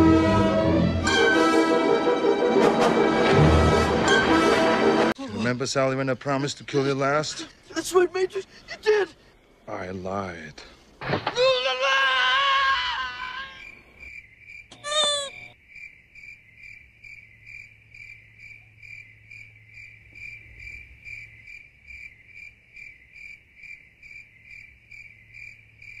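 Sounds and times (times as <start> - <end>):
crickets chirping: 11.6 - 26.0
wavering high-pitched cry: 14.7 - 15.5.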